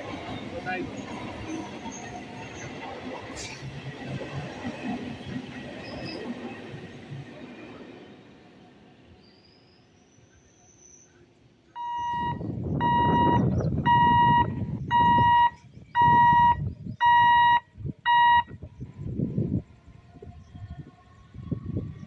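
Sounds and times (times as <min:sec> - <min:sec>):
electronic warning beeps: 0:11.8 - 0:18.6
low rumbling noise: 0:11.8 - 0:22.0.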